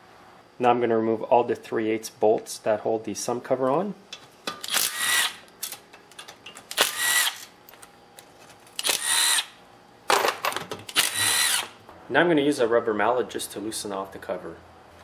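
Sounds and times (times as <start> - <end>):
cordless drill spinning bolts: 4.6 - 5.8, 6.7 - 7.5, 8.8 - 9.5, 10.9 - 11.7.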